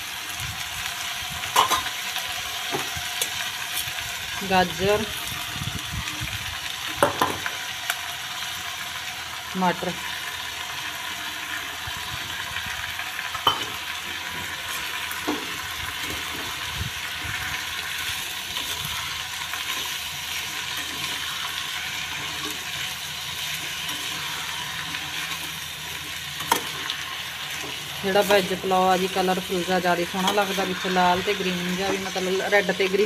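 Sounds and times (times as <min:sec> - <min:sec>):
vegetables sizzling in oil: 0:00.0 - 0:33.0
spoon tapping pan: 0:13.4 - 0:13.7.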